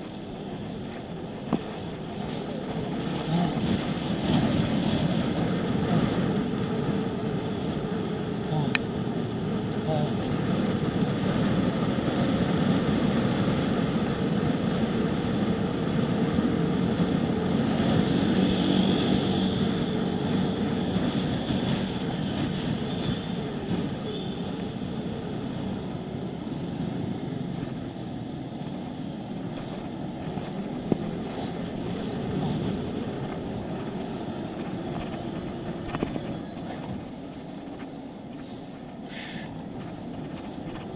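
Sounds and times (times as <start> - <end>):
bicycle road noise: 0.0 - 40.9
wind on microphone: 9.6 - 40.9.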